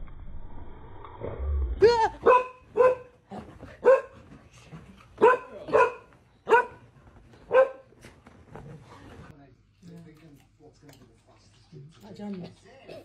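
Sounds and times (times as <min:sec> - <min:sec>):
dog barking: 0:02.2 - 0:03.2, 0:03.8 - 0:04.2, 0:05.2 - 0:06.8, 0:07.5 - 0:07.9.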